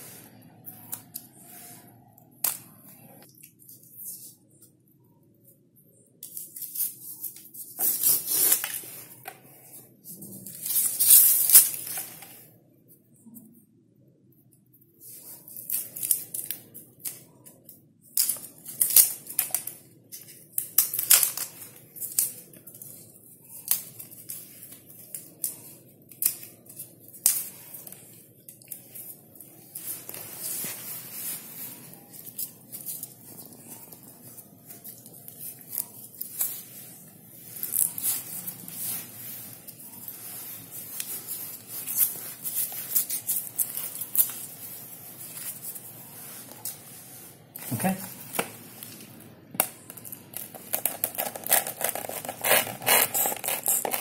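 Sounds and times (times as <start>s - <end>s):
dry husk crackling and tearing: 15.1s - 46.8s, 49.6s - 54.0s.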